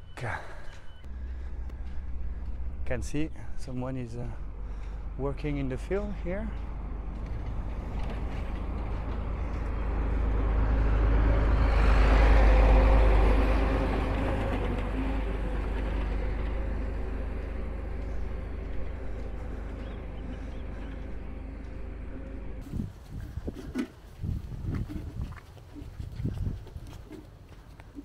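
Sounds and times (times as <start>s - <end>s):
vehicle engine passing by: 1.1s - 22.8s.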